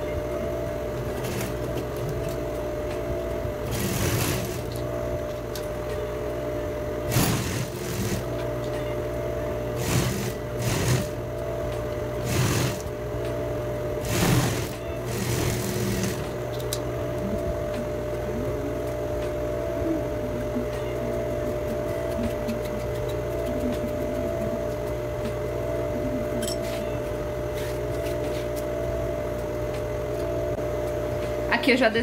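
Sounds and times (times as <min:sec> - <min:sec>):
steady hum: 0:00.0 - 0:32.0
sewing machine stitching: 0:03.6 - 0:04.7, 0:07.1 - 0:08.3, 0:09.8 - 0:11.2, 0:12.2 - 0:12.9, 0:14.0 - 0:16.3.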